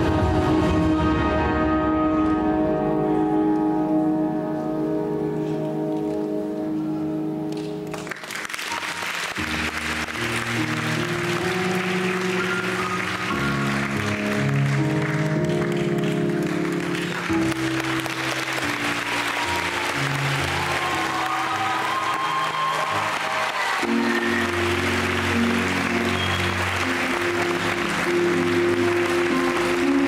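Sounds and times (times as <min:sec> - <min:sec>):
music of sustained chords: 0:00.0 - 0:30.0
audience applauding: 0:07.6 - 0:30.0.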